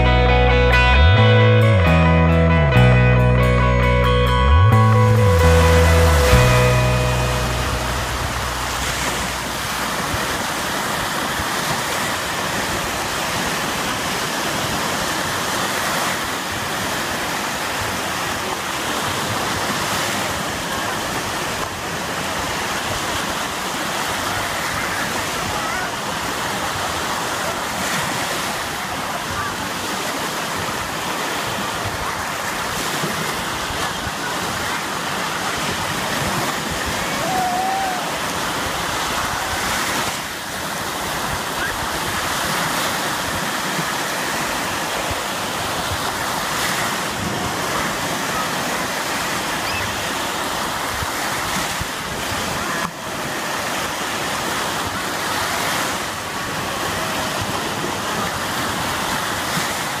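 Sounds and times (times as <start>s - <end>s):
small waves washing onto beach: 5.4s - 60.0s.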